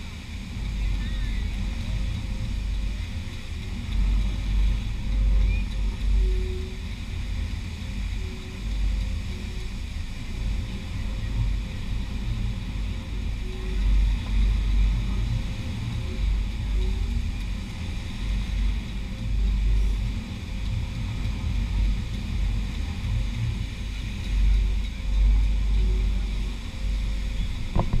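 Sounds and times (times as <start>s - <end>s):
wind buffeting microphone: 0.0s - 28.0s.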